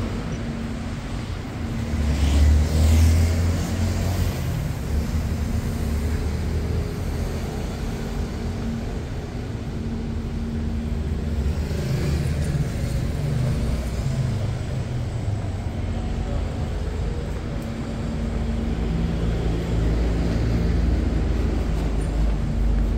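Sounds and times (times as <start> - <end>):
steady traffic rumble: 0.0 - 22.9
vehicle passing close: 1.6 - 7.8.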